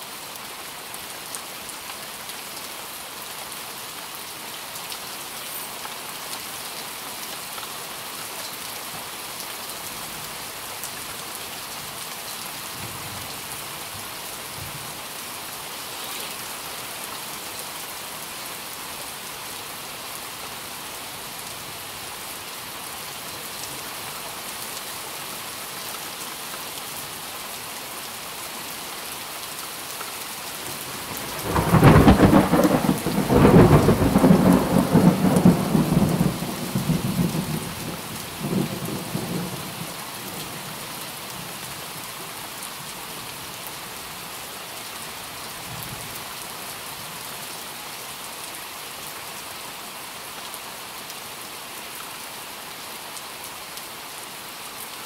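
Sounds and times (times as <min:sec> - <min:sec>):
steady rain falling: 0:00.0 - 0:55.0
loud thunderclap rumbling: 0:31.4 - 0:37.6.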